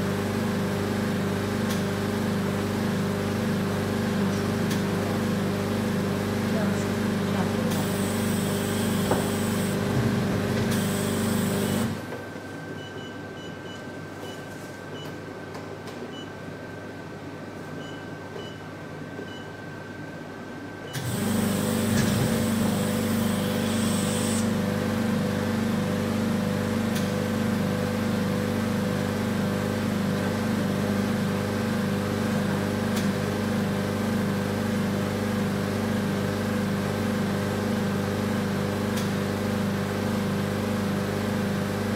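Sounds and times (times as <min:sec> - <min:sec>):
vacuum pump humming and pulsing: 0:00.0 - 0:12.5, 0:20.9 - 0:41.9.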